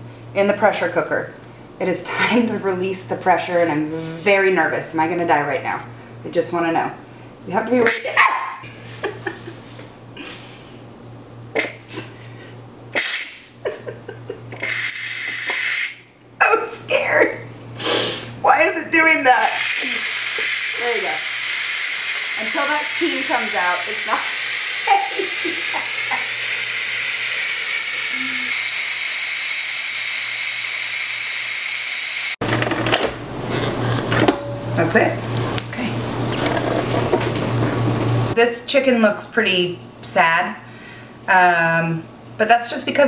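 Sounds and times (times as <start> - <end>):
pressure cooker valve hissing steam: 13.0 - 13.5, 14.6 - 16.0, 19.4 - 32.4.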